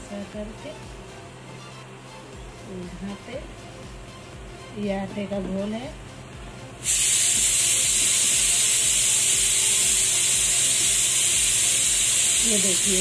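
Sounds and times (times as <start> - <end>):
loud steady hiss: 6.8 - 13.0.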